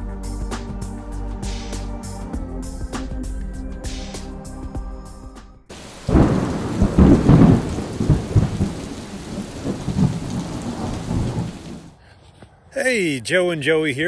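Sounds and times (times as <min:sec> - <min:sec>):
rolling thunderclap: 0:05.7 - 0:11.9
steady rain: 0:05.7 - 0:12.0.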